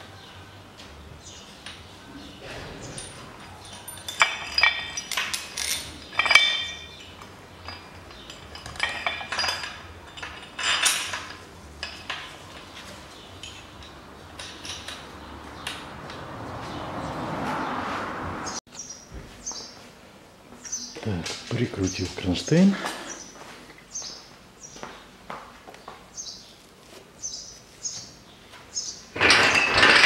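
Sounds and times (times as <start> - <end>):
metal tools and bolts clinking: 1.3 - 15.9, 29.1 - 30.0.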